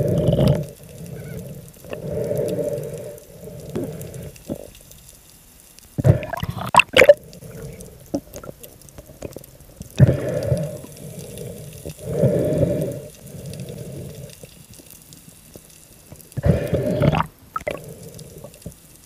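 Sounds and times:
low underwater hum: 0.0 - 19.0
underwater rushing gurgling: 6.0 - 8.2, 16.4 - 18.1.

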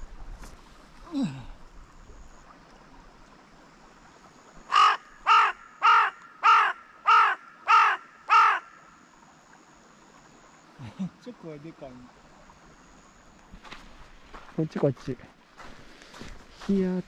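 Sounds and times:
crow cawing harshly: 4.7 - 8.8.

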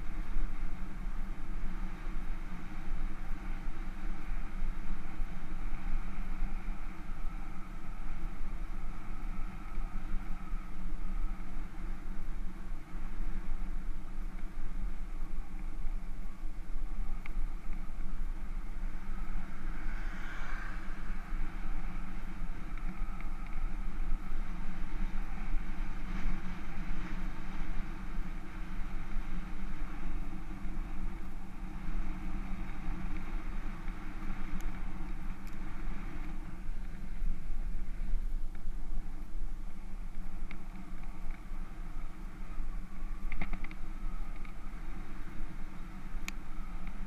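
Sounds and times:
bicycle road rumble: 0.0 - 47.0.

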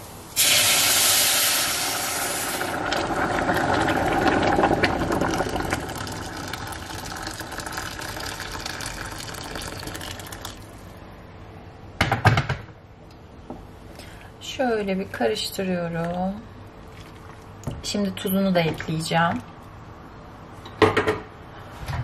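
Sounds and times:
water hissing on hot pan: 0.4 - 10.4
water pouring and splashing: 2.1 - 10.8, 16.8 - 17.7.

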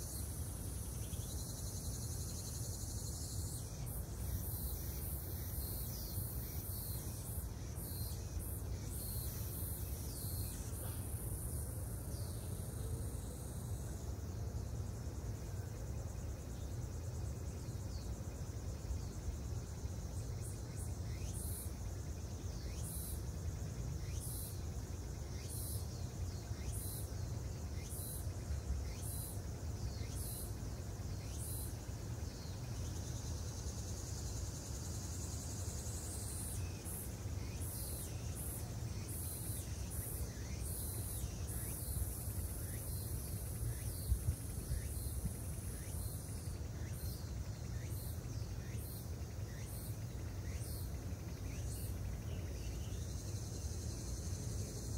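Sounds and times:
insects chirping: 0.0 - 54.9.

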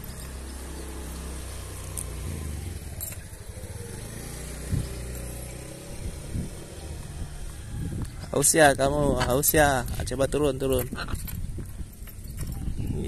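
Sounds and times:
vehicle engine humming: 0.0 - 8.5.

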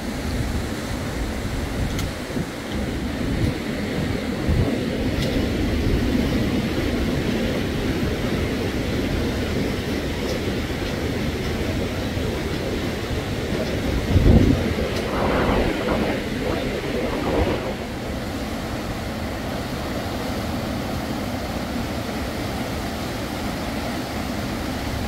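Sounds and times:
wind buffeting microphone: 0.0 - 19.6.

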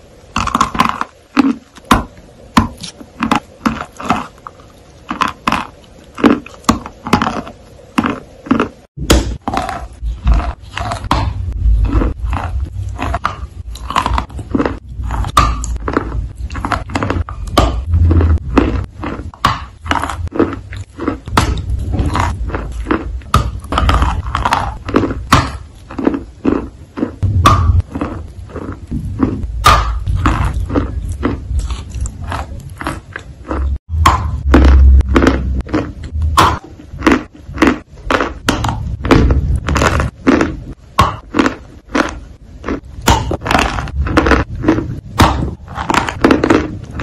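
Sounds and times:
biting and chewing: 0.0 - 47.0
low rumble: 9.9 - 25.8, 27.2 - 40.8.

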